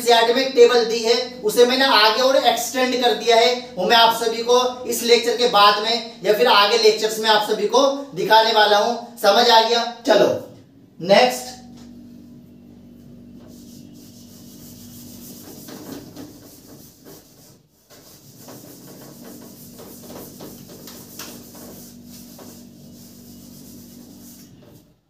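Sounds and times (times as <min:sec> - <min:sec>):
low steady hum: 0:10.4 - 0:24.8
rubbing on a writing board: 0:13.4 - 0:25.0.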